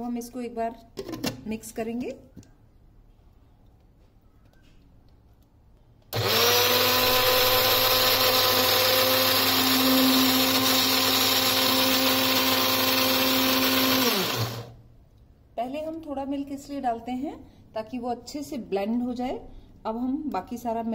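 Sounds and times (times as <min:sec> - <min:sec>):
electric blender running: 0:06.1 - 0:14.8.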